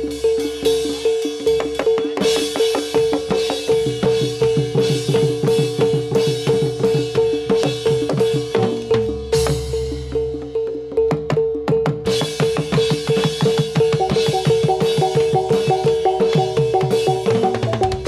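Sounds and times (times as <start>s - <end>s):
fast even drumming: 0.0s - 18.0s.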